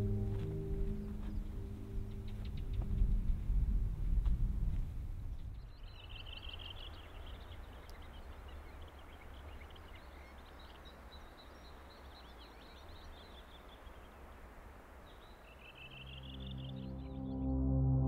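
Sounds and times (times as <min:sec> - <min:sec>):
low wind rumble: 0:00.0 - 0:18.0
small birds chirping and trilling: 0:05.3 - 0:17.2.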